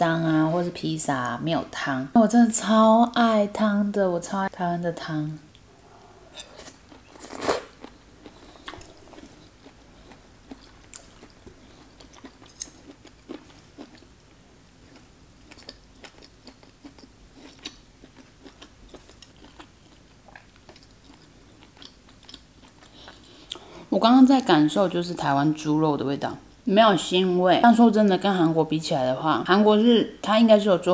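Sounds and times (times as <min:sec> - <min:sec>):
wet chewing: 0:05.8 - 0:14.1, 0:14.9 - 0:23.6.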